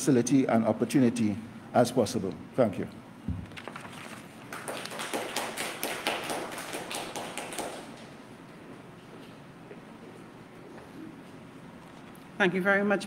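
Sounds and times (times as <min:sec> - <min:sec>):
people clapping: 0:04.5 - 0:08.1.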